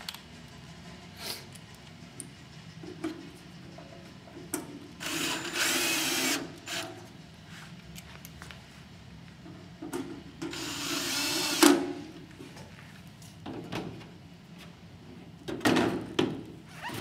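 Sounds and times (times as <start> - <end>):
cordless drill whirring: 5.0 - 6.8, 10.5 - 11.7.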